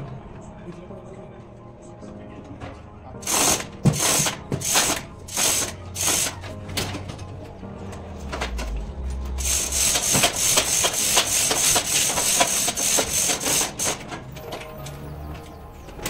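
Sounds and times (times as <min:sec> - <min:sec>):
hand tools clicking and knocking: 0:09.4 - 0:16.0.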